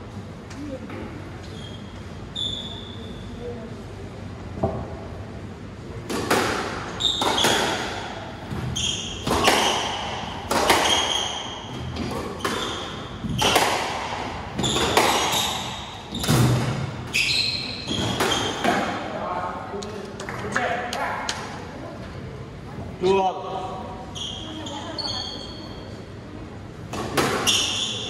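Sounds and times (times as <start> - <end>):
squash ball hitting rackets and walls: 6.0 - 19.2, 26.9 - 28.0
shoes squeaking on wooden floor: 14.6 - 18.7.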